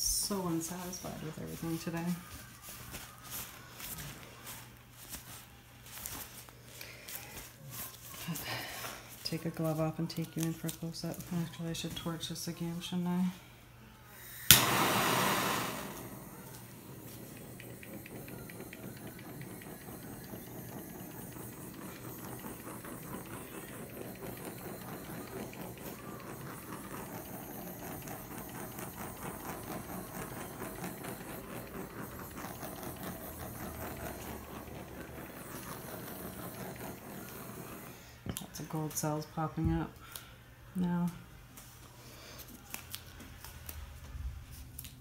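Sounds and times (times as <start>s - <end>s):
blowtorch hissing: 14.2s - 38.0s.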